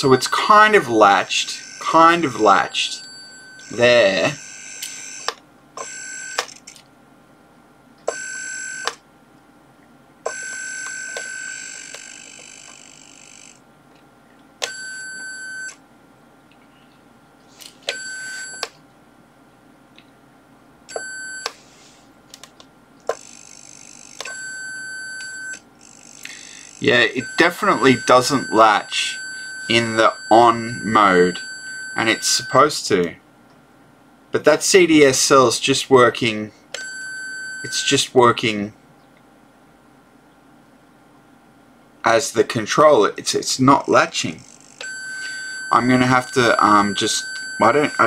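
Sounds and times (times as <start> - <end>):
electronic buzzer tone bursts: 0.0 - 6.6, 10.3 - 13.6, 23.1 - 32.6, 43.8 - 48.0.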